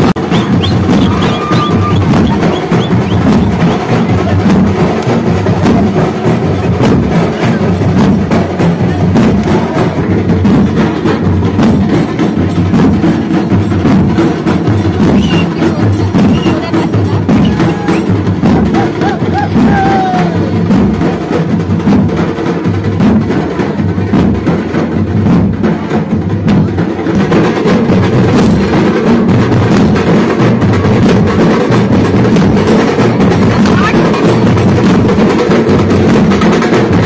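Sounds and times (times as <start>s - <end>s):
drum band playing fast rhythm: 0.0s - 37.0s.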